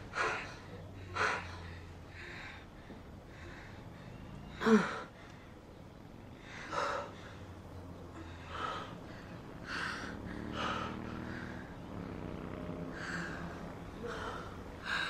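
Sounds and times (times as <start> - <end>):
person breathing: 0.0 - 11.9.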